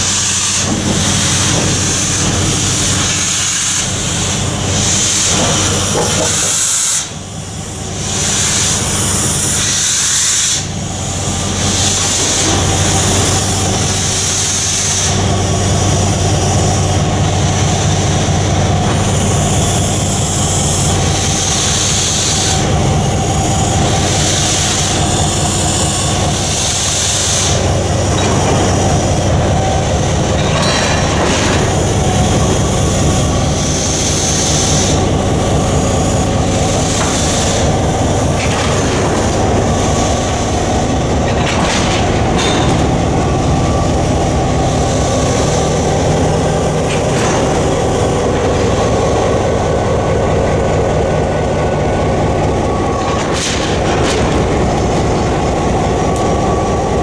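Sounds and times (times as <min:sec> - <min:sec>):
hissing steam: 0:00.0 - 0:41.4
steam locomotive rumble: 0:00.0 - 0:57.0.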